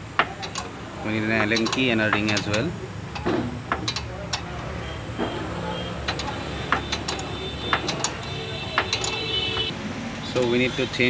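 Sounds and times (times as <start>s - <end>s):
sharp metal clicks of spanner: 0.0s - 4.6s, 6.0s - 9.7s.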